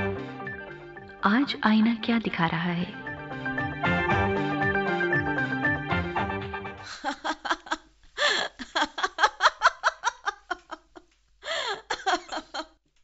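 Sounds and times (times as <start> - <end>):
background music: 0.0 - 7.4
woman laughing loudly: 6.8 - 12.8.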